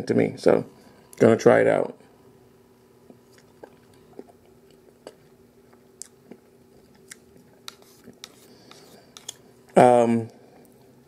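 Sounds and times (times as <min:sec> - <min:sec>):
faint steady hum: 0:00.0 - 0:11.0
quiet chewing: 0:03.0 - 0:09.8.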